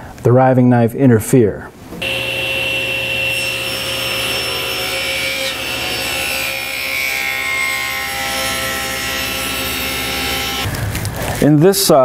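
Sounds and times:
table saw cutting wood: 2.0s - 10.7s.

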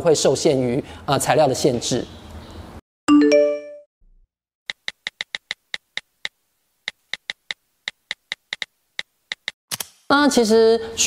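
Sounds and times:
typing sound effect clicks: 4.7s - 9.9s.

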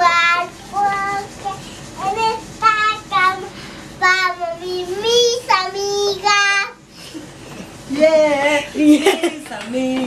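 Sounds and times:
child singing: 0.0s - 6.8s.

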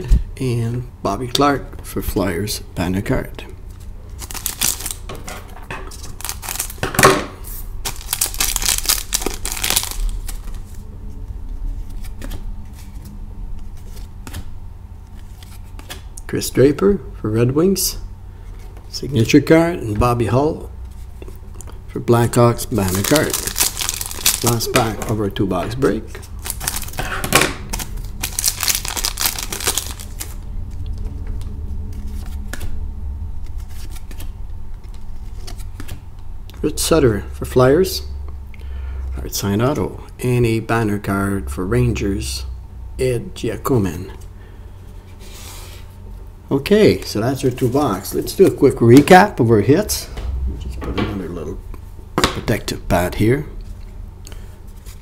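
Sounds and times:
steady low hum: 0.0s - 55.0s
cards rustling: 3.7s - 5.0s, 5.9s - 6.8s, 7.8s - 10.8s, 22.6s - 27.1s, 27.7s - 31.2s, 33.4s - 36.0s
card pack wrapper ripping: 4.2s - 5.0s, 6.0s - 6.8s, 7.8s - 10.7s, 22.7s - 25.0s, 26.2s - 27.0s, 27.6s - 30.4s.

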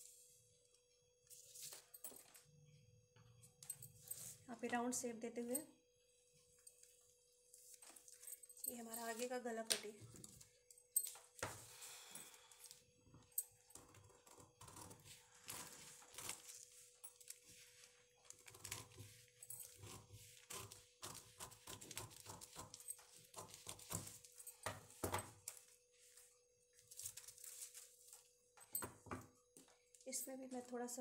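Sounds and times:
paper rustling: 14.9s - 24.3s, 25.5s - 28.4s
scissors snipping newspaper: 15.3s - 17.4s, 19.6s - 24.3s.

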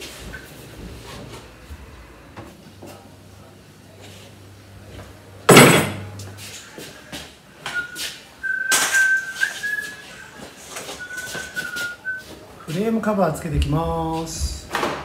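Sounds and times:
loud thump: 5.5s - 6.1s
person whistling: 7.7s - 12.3s.

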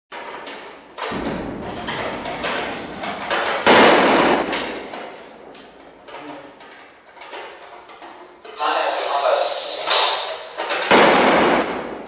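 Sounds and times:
loud gunfire close by: 1.1s - 4.9s, 10.9s - 12.0s
rifle shots: 1.1s - 6.1s, 10.6s - 12.0s.

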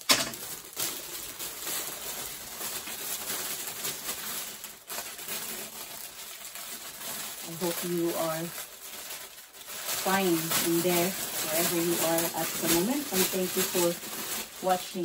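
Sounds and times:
plastic wrapping rustling: 0.0s - 15.0s.

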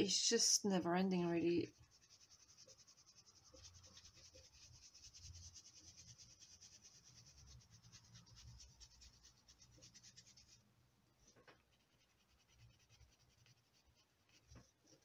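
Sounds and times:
pencil scratching on paper: 1.6s - 10.6s, 11.5s - 15.0s.

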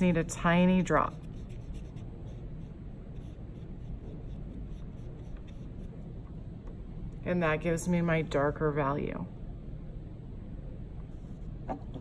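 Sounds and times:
low room hum: 0.0s - 12.0s
paintbrush scratching on paper: 0.4s - 6.0s.

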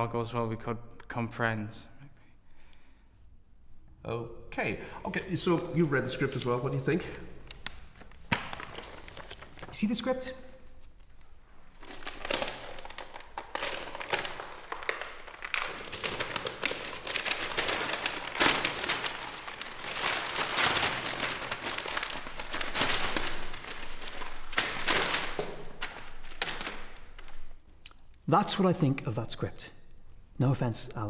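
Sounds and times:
paper ripping and crinkling: 5.8s - 27.8s.

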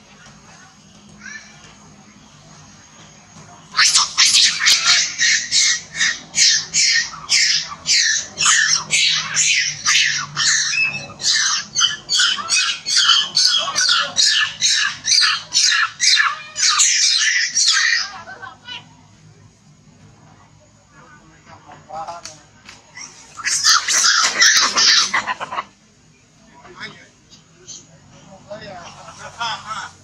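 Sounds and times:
young monkey screaming: 3.7s - 18.2s, 23.0s - 25.7s.

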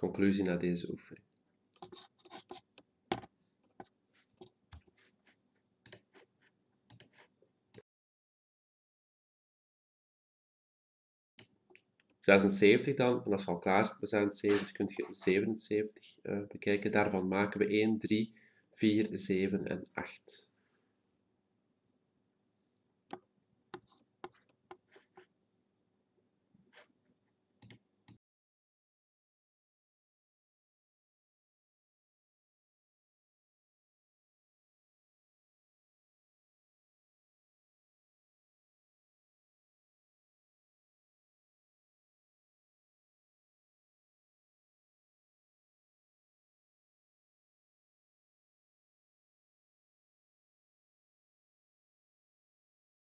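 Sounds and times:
computer mouse and keyboard clicks: 1.8s - 5.1s, 6.9s - 7.3s
keyboard and mouse clicking: 5.8s - 6.2s, 6.9s - 7.2s, 27.6s - 28.2s.

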